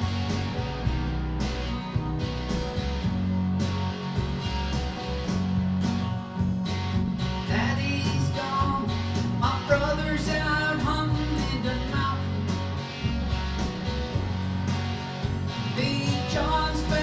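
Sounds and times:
electric guitar strumming: 0:00.0 - 0:17.0
man singing: 0:07.5 - 0:12.5, 0:15.7 - 0:17.0.

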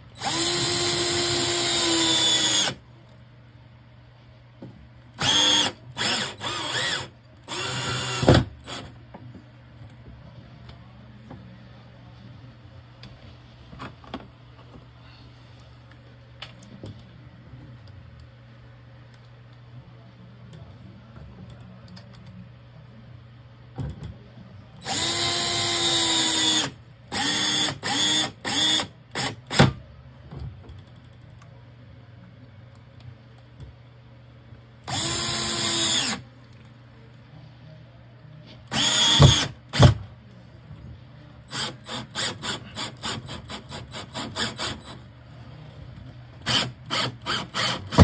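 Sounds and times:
cordless drill driving screws: 0:00.2 - 0:02.8, 0:05.2 - 0:08.9, 0:24.8 - 0:29.4, 0:34.9 - 0:36.2, 0:38.7 - 0:40.0, 0:46.5 - 0:48.0
drill click: 0:38.7 - 0:40.0.

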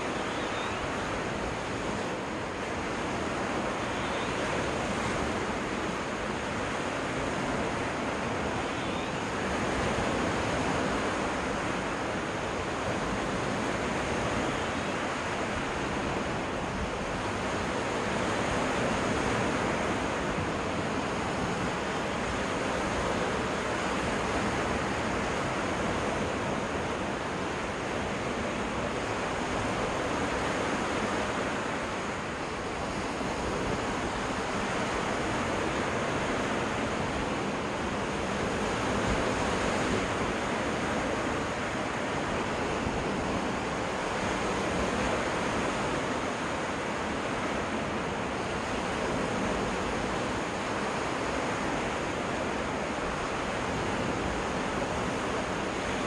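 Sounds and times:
waves washing onto beach: 0:00.0 - 0:56.0.

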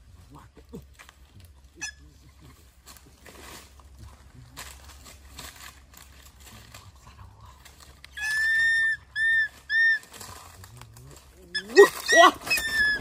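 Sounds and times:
high whistled call: 0:08.2 - 0:10.1, 0:11.6 - 0:13.0.

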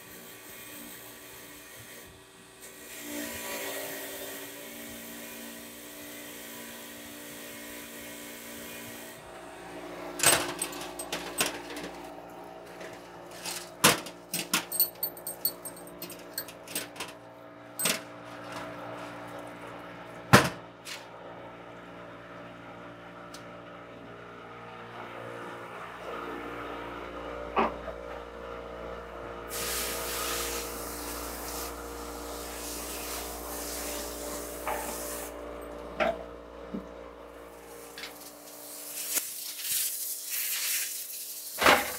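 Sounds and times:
wire wheel grinder whine: 0:08.6 - 0:19.6
metal knocks and clinks: 0:10.2 - 0:12.0, 0:14.3 - 0:17.1, 0:17.8 - 0:18.0
hiss: 0:29.5 - 0:35.4, 0:38.2 - 0:41.9.

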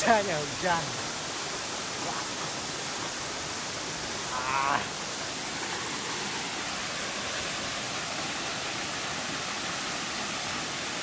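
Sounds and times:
waterfall rushing over rock: 0:00.0 - 0:11.0.

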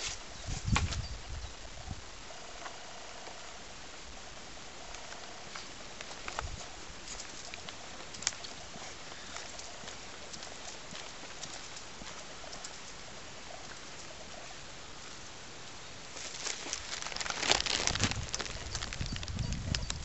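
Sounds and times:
wind on microphone: 0:00.0 - 0:02.2, 0:06.3 - 0:07.3, 0:17.6 - 0:20.0.

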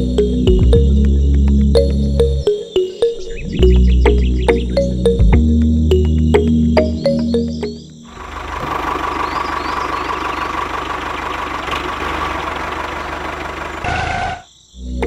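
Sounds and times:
diesel tractor engine chugging: 0:08.1 - 0:14.4.

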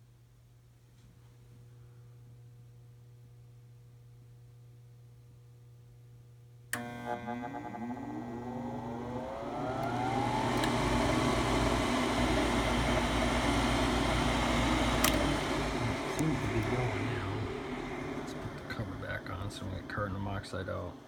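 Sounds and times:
furnace motor whining: 0:06.7 - 0:21.0
switch click: 0:09.8 - 0:10.8, 0:15.0 - 0:15.4.

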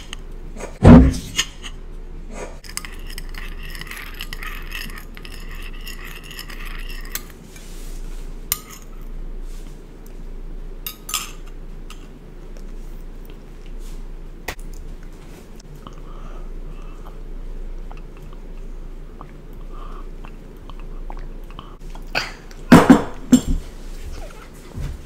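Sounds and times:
spoon stirring in china teacup: 0:02.6 - 0:07.3.

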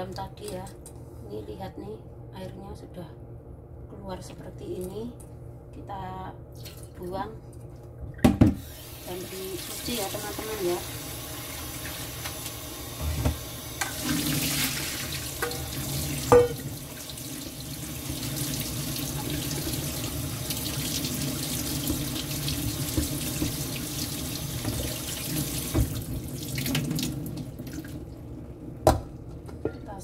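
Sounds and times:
tap water running into colander: 0:08.6 - 0:28.0.

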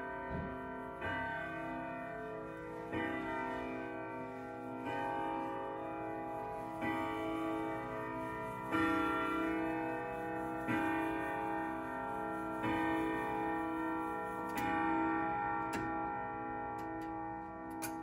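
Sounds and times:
grandfather clock striking: 0:12.6 - 0:18.0.

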